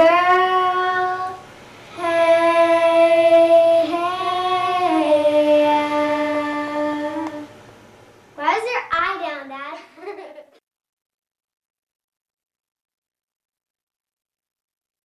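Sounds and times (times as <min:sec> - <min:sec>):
girls singing unaccompanied: 0:00.0 - 0:07.5.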